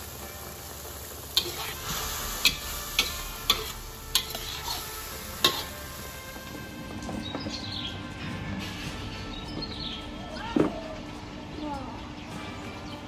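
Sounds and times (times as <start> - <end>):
sauce sizzling: 0.0 - 7.0
spatula clacking on wok: 2.4 - 4.8, 5.4 - 5.7.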